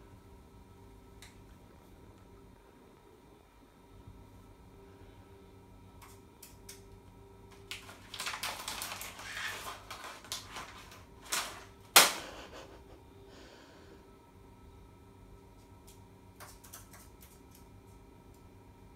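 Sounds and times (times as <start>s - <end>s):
sharp plastic cracks: 7.5s - 12.3s
plastic packet crinkling: 7.6s - 12.1s.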